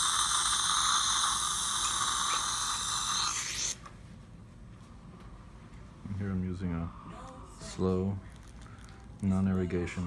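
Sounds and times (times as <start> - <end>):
dental drill high whine: 0.0 - 3.8.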